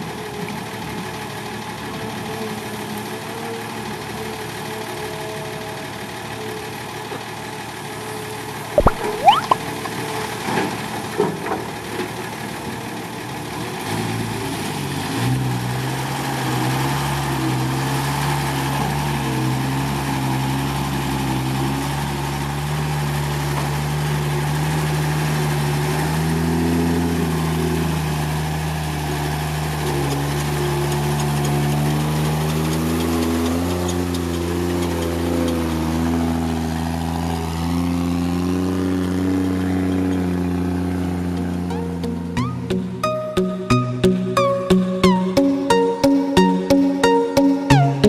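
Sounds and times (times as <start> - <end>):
diesel engine running: 15.4 - 48.0.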